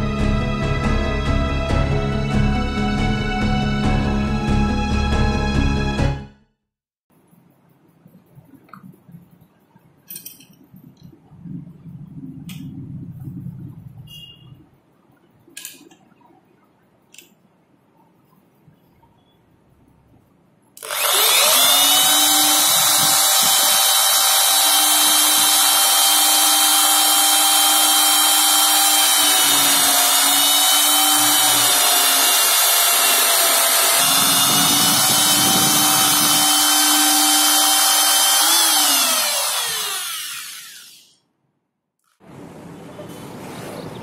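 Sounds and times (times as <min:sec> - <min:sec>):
electric drill boring into wood: 0:20.8 - 0:41.1.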